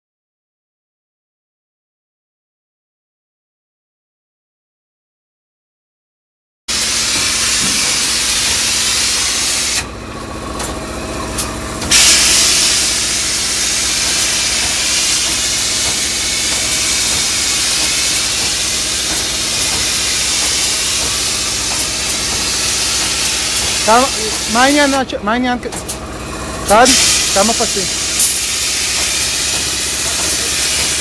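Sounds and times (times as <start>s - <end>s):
spray gun hissing: 6.7s - 9.8s, 11.9s - 25.1s, 26.6s - 31.0s
machine humming: 6.7s - 31.0s.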